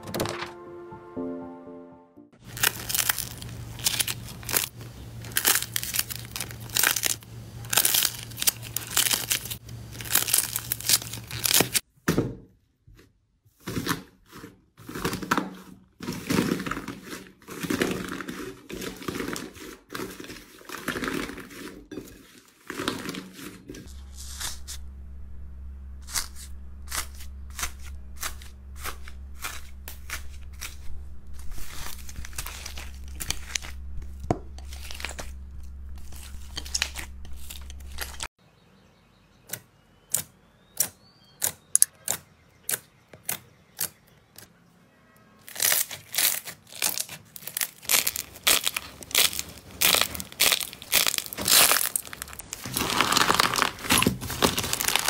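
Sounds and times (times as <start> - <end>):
foam slime crackling: 2.4 - 11.8, 14.8 - 24.7, 26.0 - 38.3, 45.5 - 55.0
slime skin cracking and crinkling: 2.4 - 11.8, 26.1 - 38.3, 45.5 - 55.0
low hum: 23.7 - 38.3
slime popping: 45.6 - 55.0.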